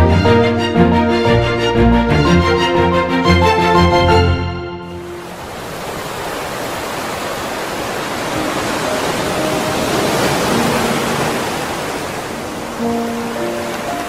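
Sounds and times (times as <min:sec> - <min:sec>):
soft music tones: 0:00.0 - 0:05.4, 0:12.6 - 0:14.0
waves breaking on beach: 0:05.0 - 0:14.0.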